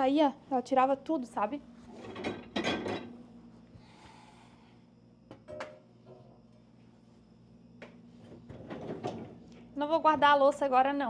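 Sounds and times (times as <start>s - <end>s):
faint steady hum: 0.0s - 11.0s
dishes clinking: 2.0s - 3.2s.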